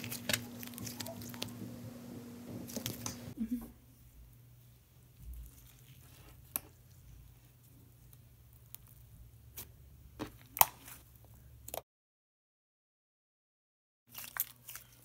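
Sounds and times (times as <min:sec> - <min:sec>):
hands squishing slime: 0:00.0 - 0:01.8
low steady hum: 0:00.0 - 0:10.2.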